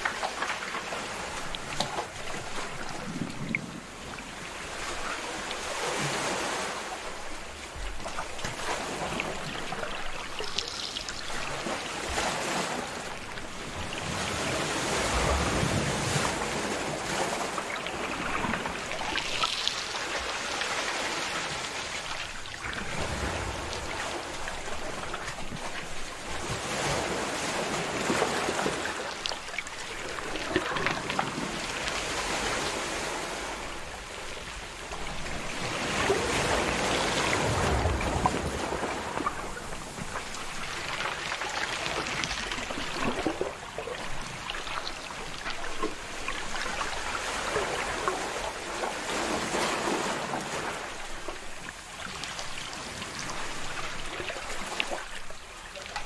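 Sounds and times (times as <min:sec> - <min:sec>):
sea surf breaking on rocks: 0:11.4 - 0:44.4.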